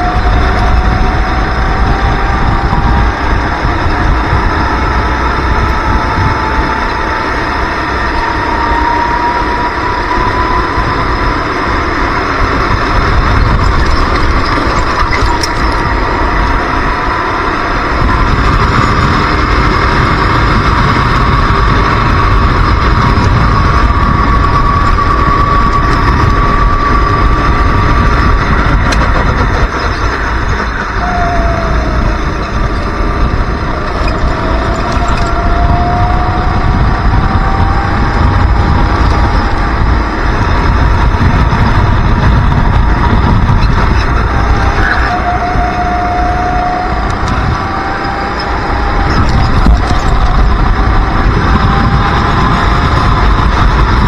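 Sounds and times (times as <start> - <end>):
kart engine at high revs: 0.0 - 54.0
wind on microphone: 0.0 - 54.0.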